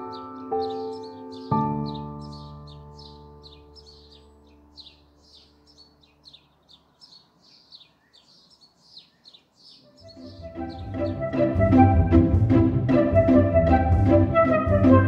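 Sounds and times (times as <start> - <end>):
background music chord: 0.0 - 6.7, 10.0 - 15.0
small bird chirping: 0.0 - 11.2.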